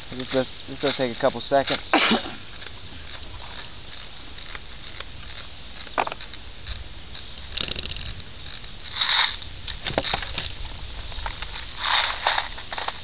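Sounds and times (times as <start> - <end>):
magazine ratchet clicks: 2.5 - 10.6.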